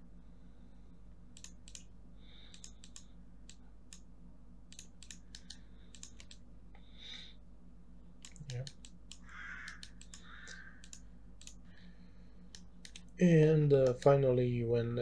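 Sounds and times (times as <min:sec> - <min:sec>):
low electrical hum: 0:00.0 - 0:15.0
mouse and keyboard clicks: 0:01.4 - 0:01.9, 0:02.5 - 0:04.1, 0:04.7 - 0:06.4, 0:08.2 - 0:11.6, 0:12.5 - 0:13.1.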